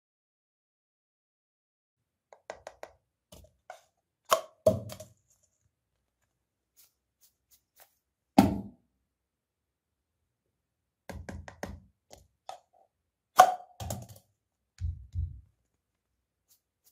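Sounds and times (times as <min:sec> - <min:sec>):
small objects tapping and knocking: 0:02.3 - 0:05.2, 0:11.1 - 0:15.5.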